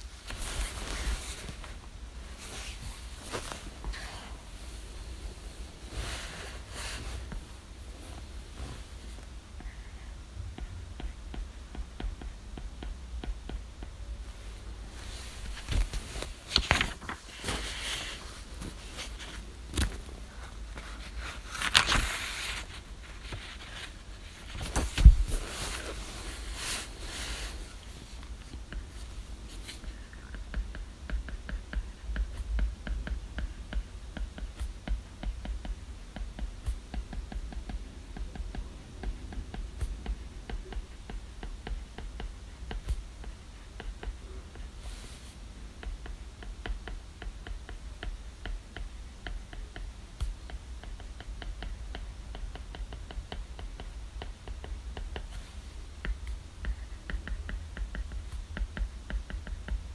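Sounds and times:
bedding rustling: 0:00.0 - 0:10.2, 0:14.2 - 0:30.2
knocks of movement: 0:10.5 - 0:35.0.

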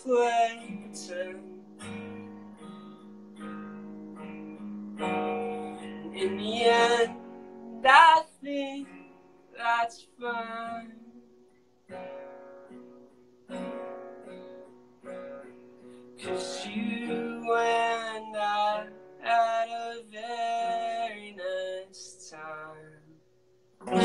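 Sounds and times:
person singing: 0:00.0 - 0:02.2, 0:05.4 - 0:11.2, 0:16.2 - 0:23.1
acoustic guitar strumming: 0:00.0 - 0:24.0.

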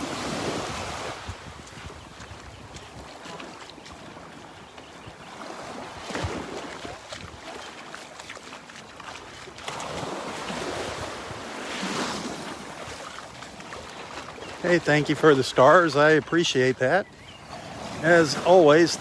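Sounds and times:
wind on microphone: 0:00.0 - 0:07.6, 0:09.8 - 0:13.0
surf washing on beach: 0:00.0 - 0:19.0.

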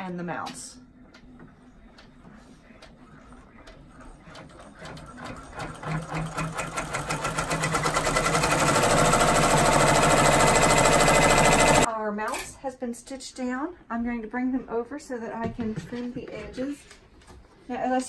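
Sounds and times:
embroidery machine stitching: 0:03.9 - 0:11.9.

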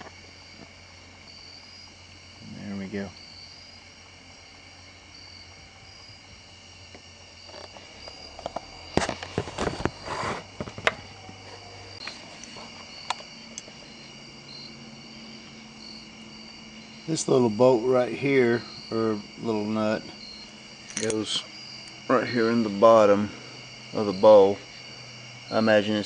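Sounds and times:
crickets chirping: 0:00.0 - 0:26.0
metal parts clicking and clattering: 0:20.8 - 0:21.2.

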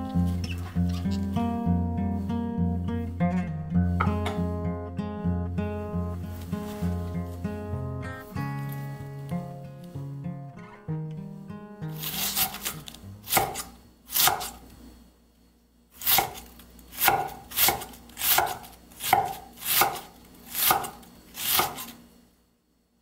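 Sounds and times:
knife slicing cabbage on wooden board: 0:12.0 - 0:14.6, 0:16.0 - 0:22.0.

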